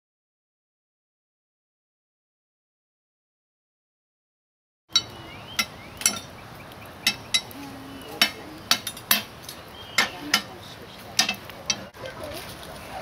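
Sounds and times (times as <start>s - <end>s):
coals being raked: 4.9s - 13.0s
metal tool clinking on grate: 5.0s - 6.3s, 7.0s - 12.7s.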